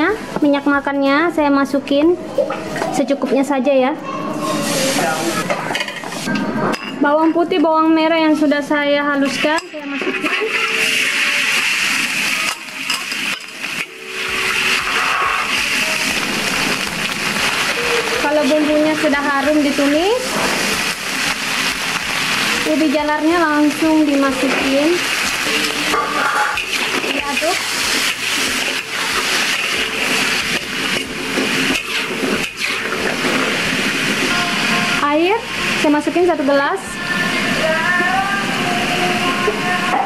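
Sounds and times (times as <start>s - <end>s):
paste sizzling in hot oil: 9.2s - 37.4s.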